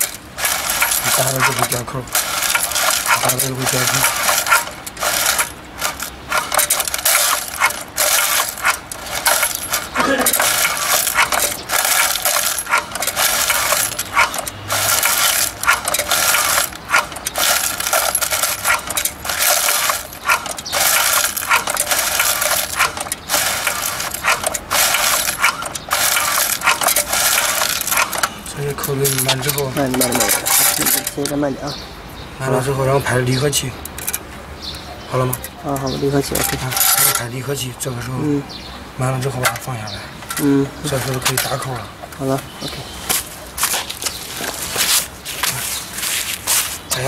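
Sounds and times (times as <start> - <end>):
metal eyelets jingling and clinking: 0.0 - 31.4, 35.3 - 37.5, 39.3 - 42.4.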